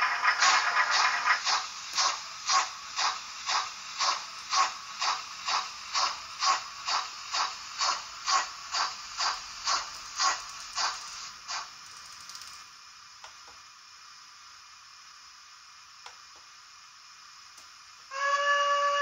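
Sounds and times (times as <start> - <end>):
model train steam chuffs: 0.0 - 12.7, 18.1 - 19.0.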